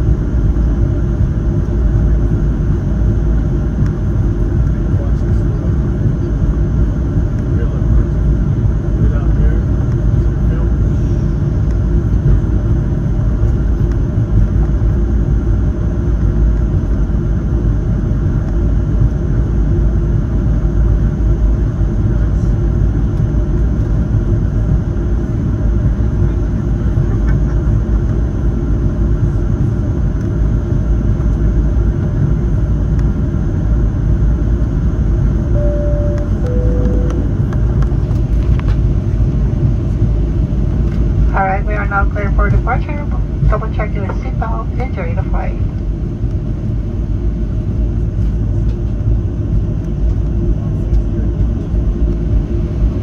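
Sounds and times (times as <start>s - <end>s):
airplane cabin rumble and hum: 0.0s - 53.0s
short chime tone: 35.6s - 37.4s.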